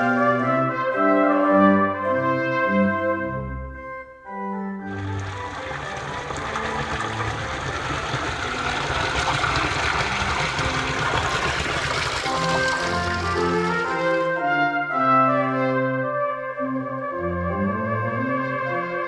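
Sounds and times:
brass music: 0:00.0 - 0:19.0
fountain water splashing: 0:04.9 - 0:14.3.

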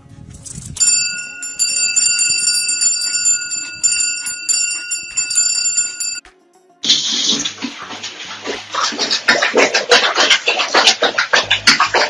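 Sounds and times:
water splashing in a basin: 0:06.8 - 0:12.0
quick sharp splashes: 0:06.9 - 0:12.0.

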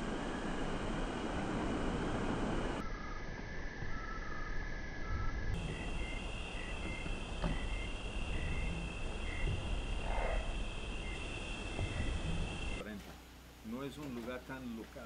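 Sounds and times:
low rumble: 0:00.0 - 0:12.8
insect chirps: 0:01.9 - 0:12.8
insects trilling: 0:02.8 - 0:12.8.

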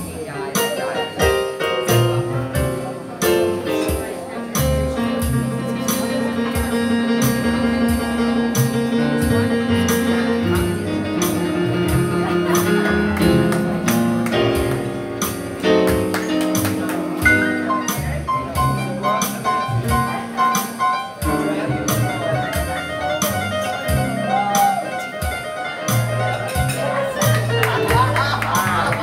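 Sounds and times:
keyboard: 0:00.0 - 0:29.0
upright bass: 0:00.0 - 0:29.0
saxophone solo: 0:20.0 - 0:28.2.

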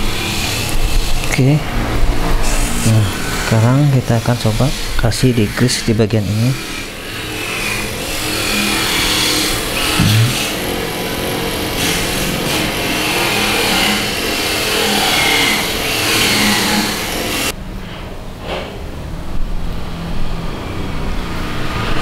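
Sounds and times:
motor engine running: 0:06.5 - 0:17.6.

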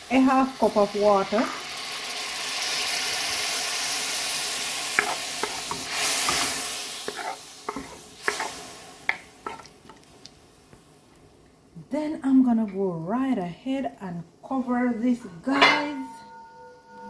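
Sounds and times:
food sizzling in a pot: 0:00.0 - 0:11.7
spoon knocking and scraping pot: 0:05.0 - 0:08.5, 0:09.1 - 0:10.0.

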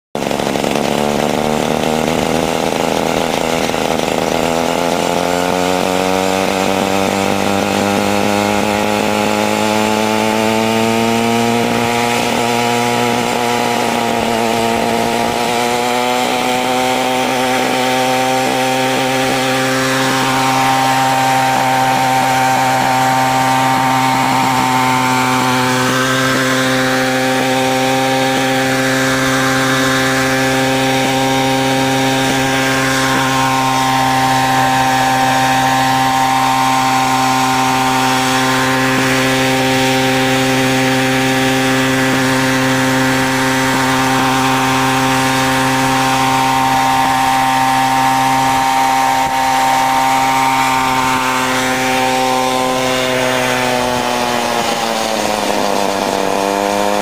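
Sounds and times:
model helicopter engine running: 0:00.1 - 0:57.0.

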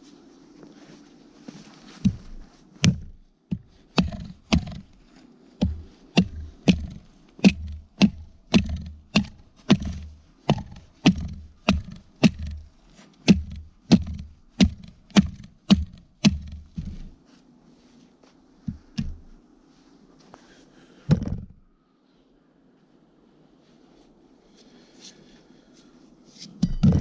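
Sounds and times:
axe chopping a log: 0:02.0 - 0:05.0, 0:05.6 - 0:17.2, 0:18.7 - 0:19.2.

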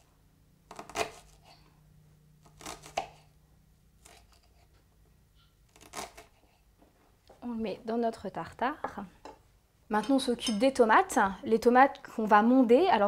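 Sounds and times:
knife chopping on wooden board: 0:00.7 - 0:01.5, 0:02.4 - 0:03.2.

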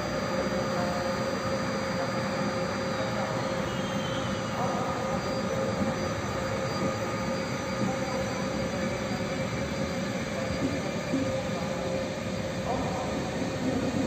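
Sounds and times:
train wheels rumbling on rails: 0:04.3 - 0:14.0.

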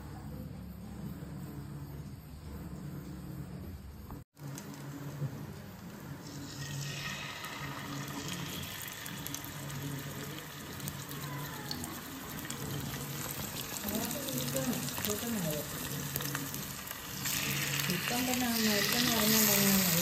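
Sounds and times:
fish sizzling in oil: 0:06.2 - 0:20.0.

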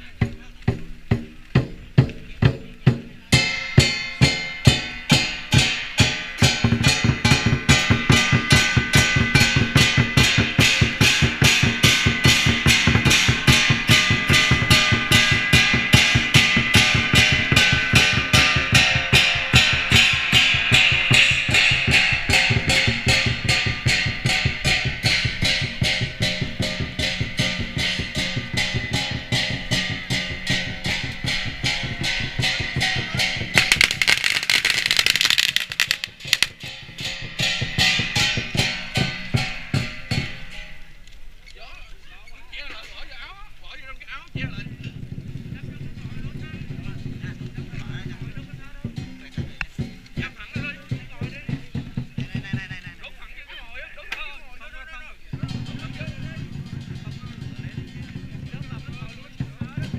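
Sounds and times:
barrel drums beating: 0:00.0 - 0:41.4, 0:42.6 - 0:59.9
cymbals and gongs ringing: 0:03.3 - 0:41.0.

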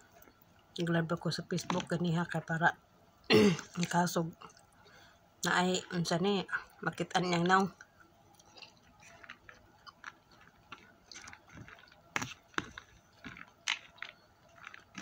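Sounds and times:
person chewing food: 0:07.3 - 0:15.0.

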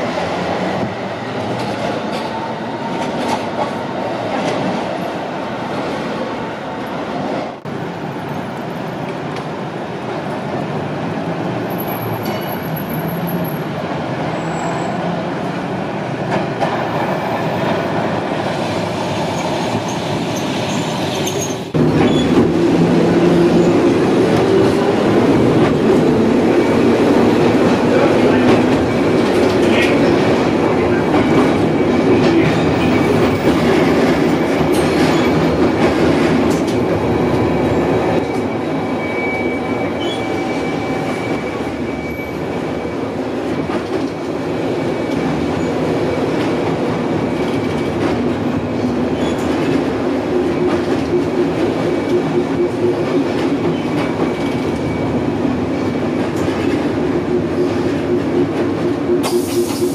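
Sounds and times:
tram wheels rumbling on rails: 0:00.0 - 0:59.9.

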